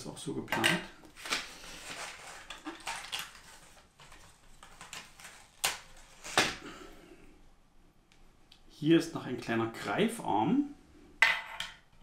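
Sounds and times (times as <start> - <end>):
plastic parts clicking and rattling: 2.3 - 5.6.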